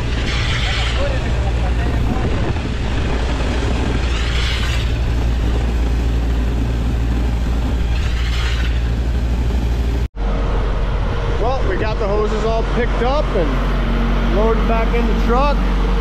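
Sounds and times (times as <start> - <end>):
hissing rush of concrete: 0.0 - 5.6
concrete pump engine drone: 0.0 - 16.0.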